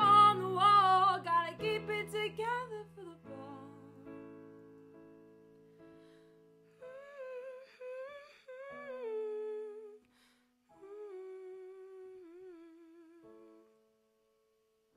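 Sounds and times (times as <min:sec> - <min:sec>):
woman humming: 0:06.8 - 0:10.1, 0:10.7 - 0:13.8.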